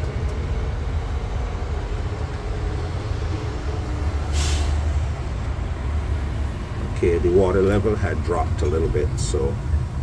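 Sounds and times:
short hiss: 4.3 - 4.9.

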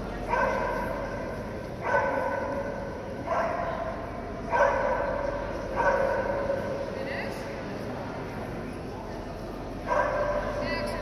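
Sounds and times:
dog barking: 0.3 - 0.9, 1.8 - 3.8, 4.5 - 6.6, 9.9 - 10.6.

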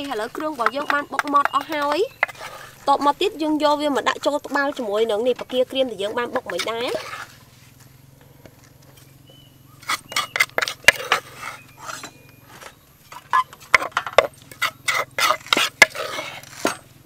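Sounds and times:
pestle knocking in stone mortar: 0.0 - 3.2, 9.8 - 11.2.

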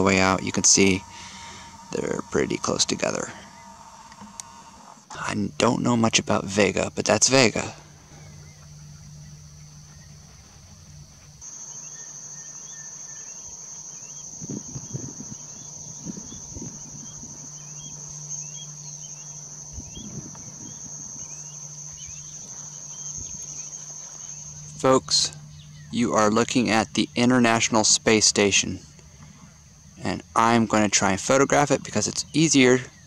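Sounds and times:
faint chirps: 0.0 - 5.9, 7.3 - 27.8
low hum: 0.0 - 32.2
crickets chorusing: 0.0 - 33.0.

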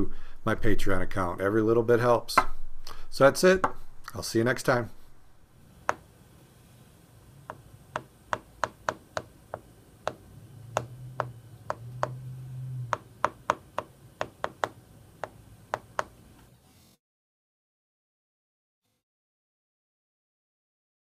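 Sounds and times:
stylus tapping on glass screen: 7.5 - 10.2, 10.8 - 12.2, 12.9 - 16.1
faint low hum: 9.4 - 13.3.

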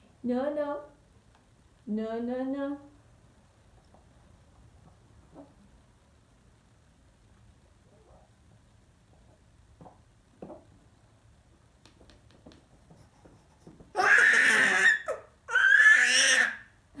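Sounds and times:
faint small noises: 0.0 - 17.0
baby squealing: 14.0 - 16.7.

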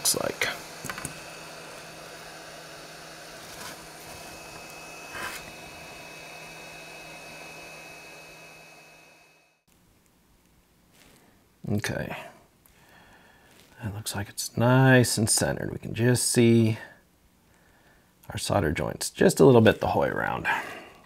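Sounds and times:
hot air blower hissing: 0.0 - 9.6.

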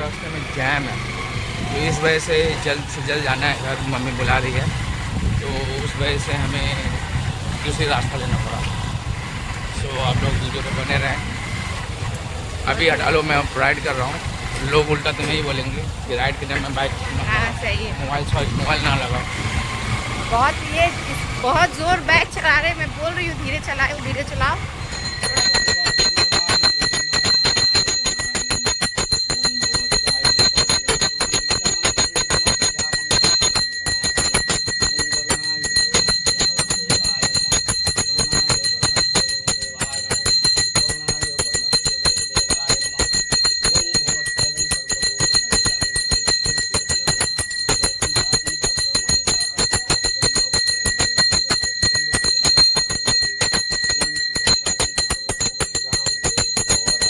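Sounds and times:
hand bell rung rapidly: 0.6 - 57.0.

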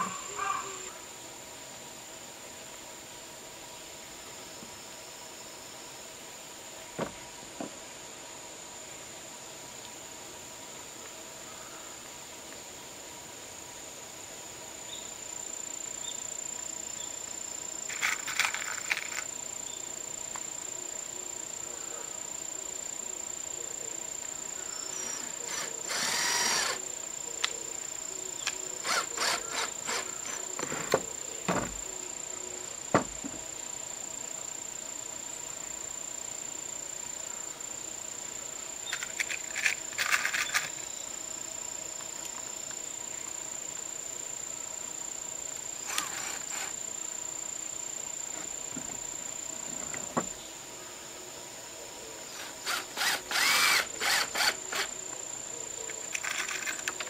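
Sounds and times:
high insect drone: 0.0 - 57.0
power drill bursts: 25.5 - 26.8, 28.8 - 30.7, 45.8 - 46.8, 52.4 - 54.9.

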